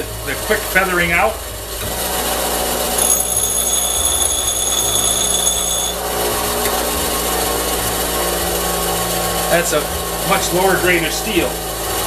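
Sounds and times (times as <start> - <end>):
bench grinder running: 0.8 - 12.0
steel grinding whine: 1.8 - 9.2.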